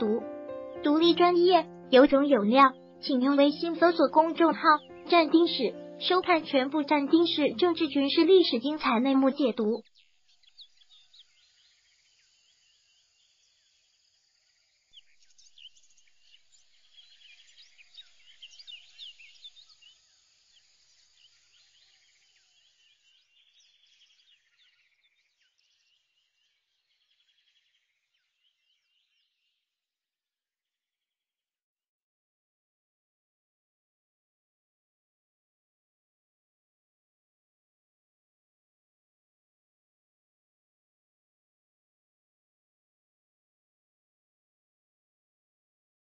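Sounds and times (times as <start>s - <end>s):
small birds chirping: 0.0s - 29.7s.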